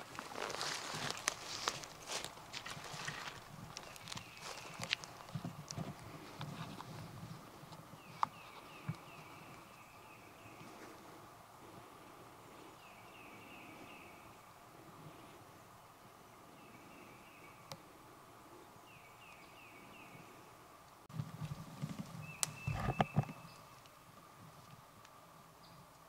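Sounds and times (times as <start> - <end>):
rustling in dry leaves: 0.0 - 15.6.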